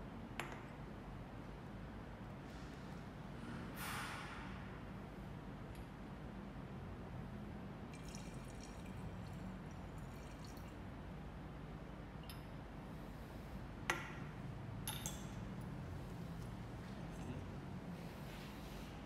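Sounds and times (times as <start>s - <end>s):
low room hum: 0.0s - 19.0s
water trickling into glass: 7.9s - 10.9s
glass clinks: 14.8s - 15.4s.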